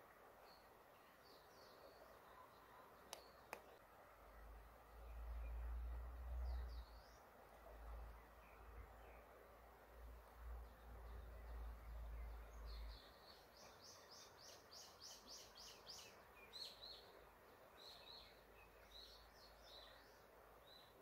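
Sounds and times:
birds singing: 0:10.4 - 0:21.0.

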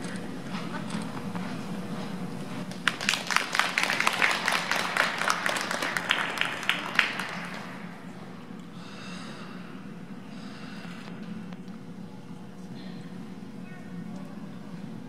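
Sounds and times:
steady hum of rink: 0:00.0 - 0:15.0
audience clapping: 0:02.7 - 0:08.0.

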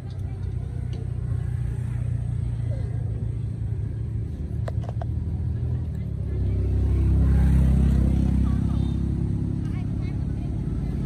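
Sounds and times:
motor vehicle rumble passing: 0:00.0 - 0:11.0.

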